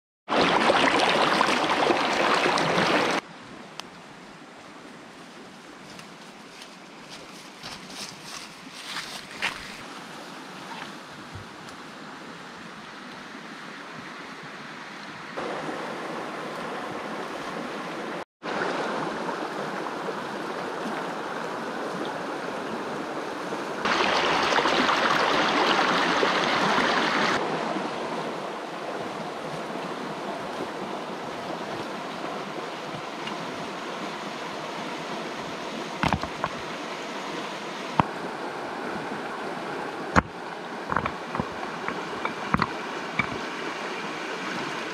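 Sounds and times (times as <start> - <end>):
stream water rushing: 0.3 - 5.2, 9.3 - 44.9
small knocks: 36.0 - 36.6, 40.2 - 43.4.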